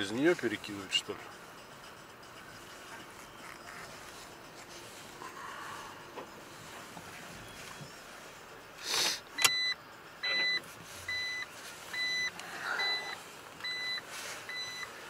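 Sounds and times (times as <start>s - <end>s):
truck reversing alarm beeping: 0.0s - 15.0s
short hiss: 8.8s - 9.4s.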